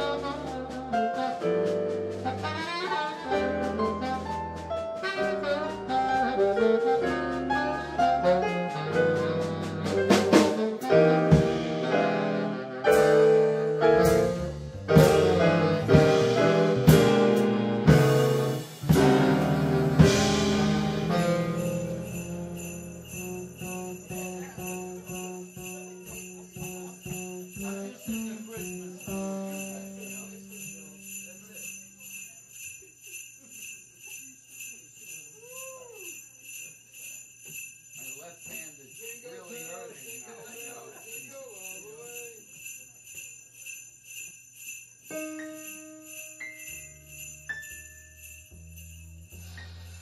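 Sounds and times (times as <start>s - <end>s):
sleigh bells shaking: 0.0s - 12.2s, 12.9s - 50.0s
band playing loud chords: 0.0s - 25.2s.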